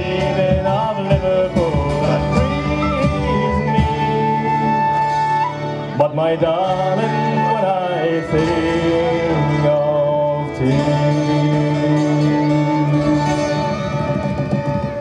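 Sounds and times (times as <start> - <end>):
frame drum: 0.0 - 4.2, 13.0 - 15.0
person singing: 0.0 - 5.1, 6.0 - 14.1
fiddle: 0.0 - 15.0
guitar: 0.0 - 15.0.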